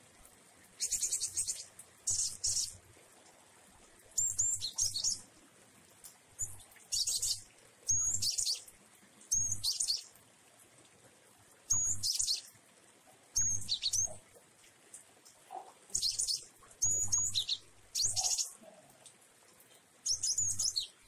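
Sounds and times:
sparrow chirping song: 0.8 - 2.8, 4.2 - 5.2, 6.4 - 8.7, 9.3 - 10.1, 11.7 - 12.5, 13.4 - 14.2, 15.9 - 18.6, 20.0 - 21.0.

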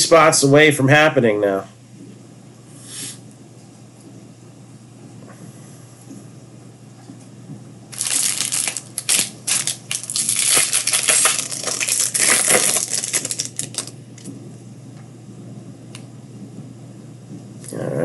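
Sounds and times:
plastic packaging tearing and crinkling: 7.9 - 14.3.

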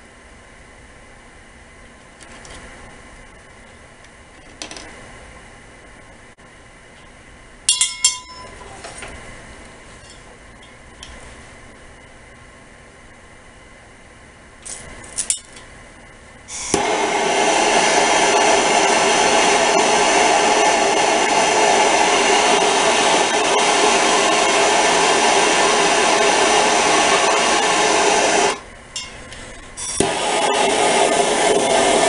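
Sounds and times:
gas torch hissing: 16.5 - 32.0.

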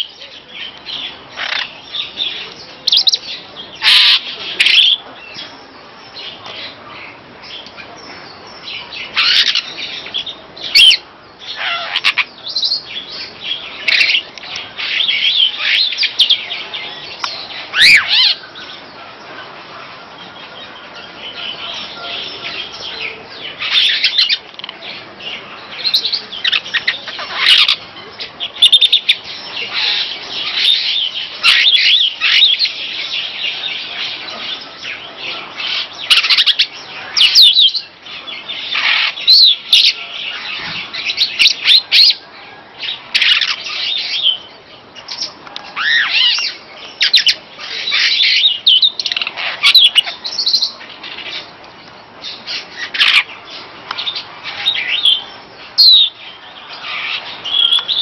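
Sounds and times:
starling singing: 0.0 - 19.0, 19.8 - 58.0.

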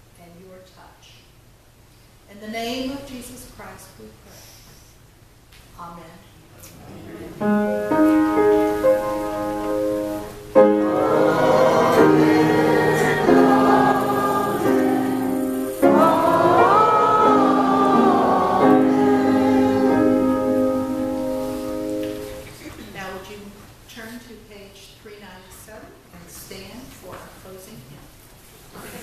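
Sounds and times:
choir singing slowly: 6.7 - 22.6
sustained keyboard chords: 7.0 - 22.6.

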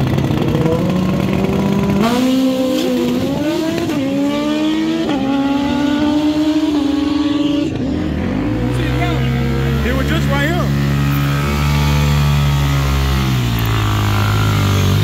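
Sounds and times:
motorcycle engine revving through gears: 0.0 - 15.0.

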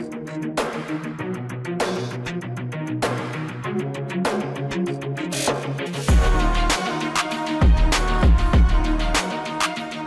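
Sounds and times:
bass line over a steady beat: 5.4 - 9.5.

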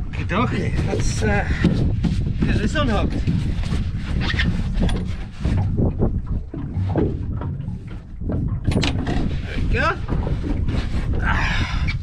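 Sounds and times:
handling knocks and rustles: 0.7 - 9.4.

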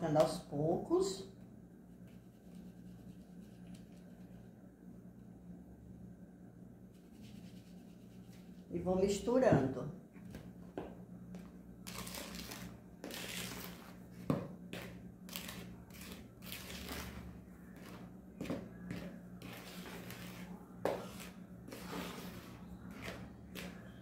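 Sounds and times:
spoon scraping dough in bowl: 11.9 - 24.0.

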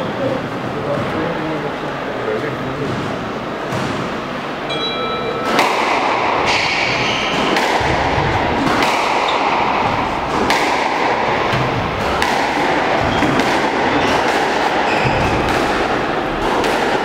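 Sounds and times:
squash ball thwacks: 2.8 - 4.2, 5.4 - 17.0
shoes squeaking on wooden floor: 14.9 - 15.5.

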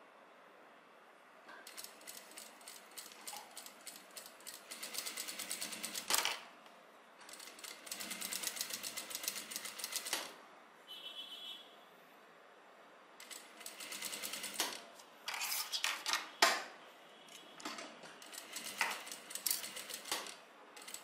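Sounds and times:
sewing machine stitching: 1.6 - 6.4, 7.3 - 10.4, 13.2 - 14.8, 18.2 - 21.0.

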